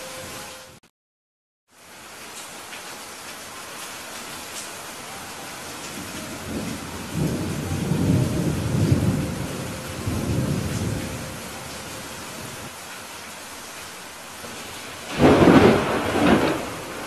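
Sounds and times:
rain hissing: 0.0 - 0.8, 1.7 - 17.0
rolling thunder rumble: 5.9 - 12.7, 14.4 - 17.0.

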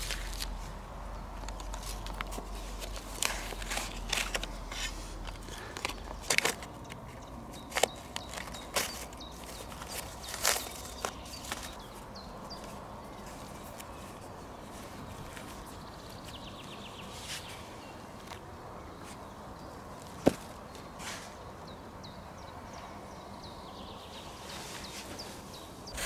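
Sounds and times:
book pages rustling: 0.0 - 18.4.

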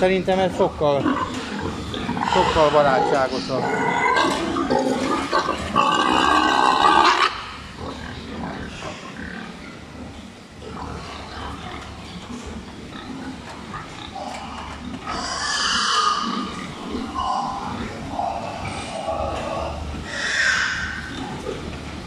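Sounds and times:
pigs grunting: 0.0 - 22.0
pig squealing: 0.5 - 10.0, 13.8 - 21.6.

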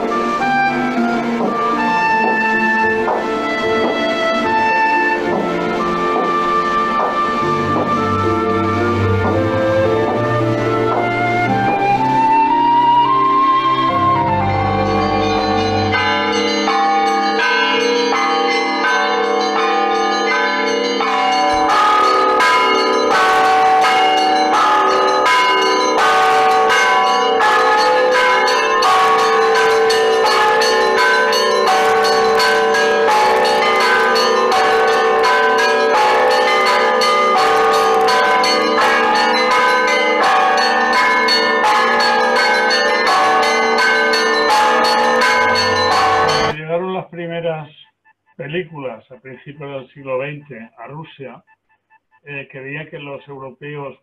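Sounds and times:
large bells ringing: 0.0 - 47.6
small bells striking rapidly: 14.9 - 46.6.

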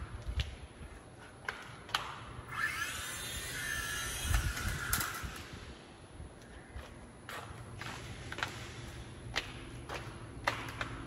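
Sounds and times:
toy helicopter motors whining: 2.5 - 5.7.

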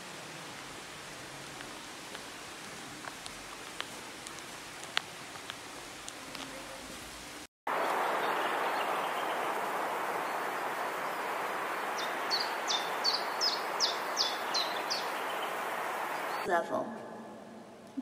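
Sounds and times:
steady rushing noise: 7.7 - 16.5
bird chirping: 7.8 - 16.5.

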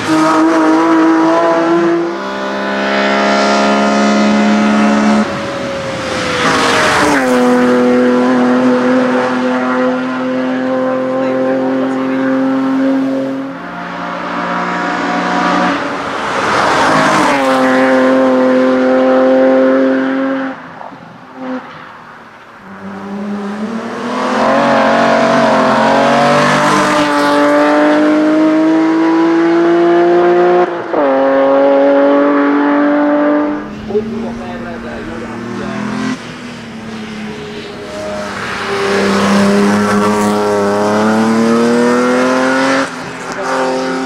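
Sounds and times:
race car engine accelerating: 22.7 - 44.0.

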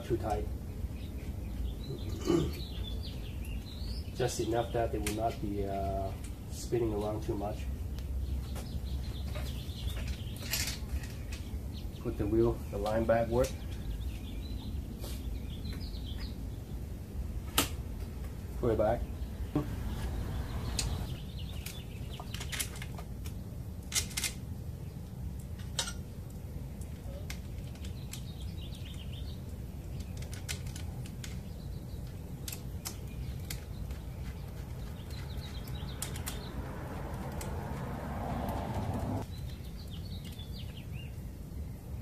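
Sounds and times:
metal parts clicking and tapping: 25.6 - 26.0, 29.8 - 36.5.

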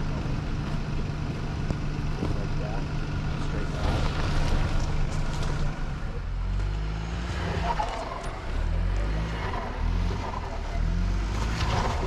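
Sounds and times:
car engine running at low speed: 0.0 - 12.0
tyres crunching on snow and rock: 3.4 - 6.8.

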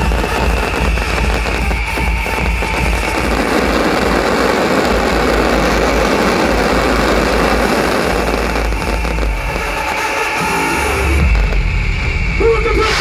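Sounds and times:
fireworks crackling and rumbling: 0.0 - 13.0.

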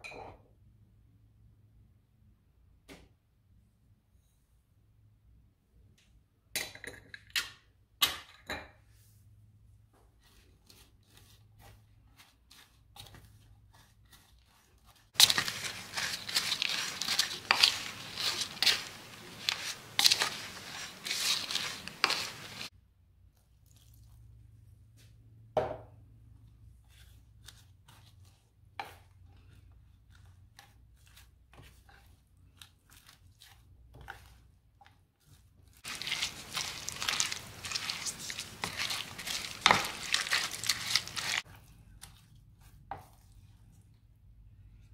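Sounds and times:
spatula scraping vegetables: 10.2 - 22.7, 35.2 - 43.4.

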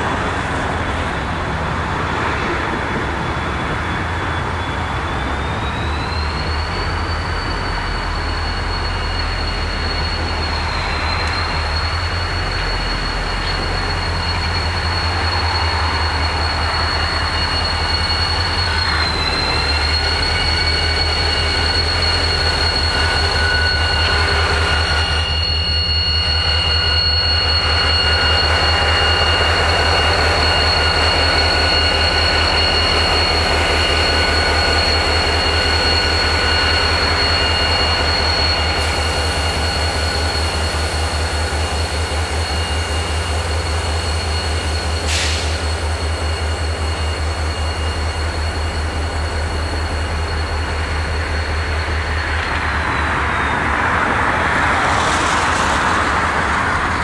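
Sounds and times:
train wheels squealing: 0.0 - 57.0
brief air hiss: 45.0 - 45.7.

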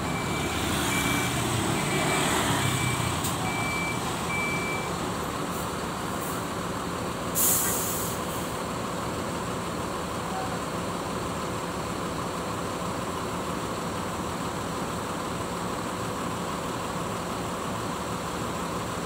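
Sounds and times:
reversing beeper: 0.0 - 4.9
bus engines running: 0.0 - 19.0
air brakes hissing: 7.3 - 8.6.

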